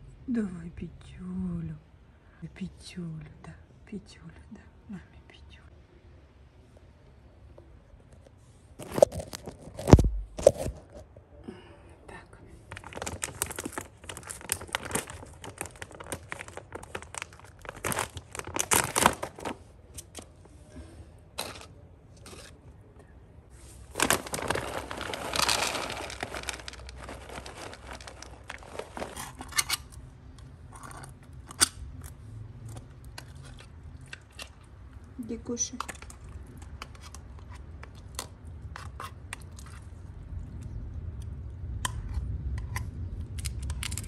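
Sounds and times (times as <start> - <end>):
food packet crinkling: 8.8 - 10.8, 12.7 - 20.4, 21.4 - 22.6, 23.6 - 30.0, 43.2 - 44.0.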